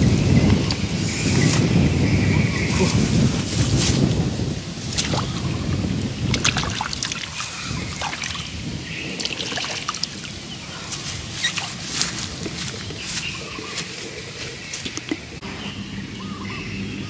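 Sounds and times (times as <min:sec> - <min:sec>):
water dripping: 0:04.9 - 0:10.7
hands sloshing in muddy water: 0:06.3 - 0:08.6, 0:09.2 - 0:15.0.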